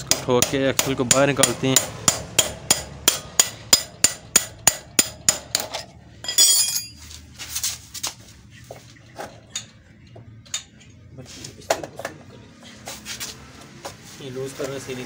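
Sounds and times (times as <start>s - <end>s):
ringing metallic clatter: 5.7s - 7.0s
light metal clinks: 6.2s - 7.0s.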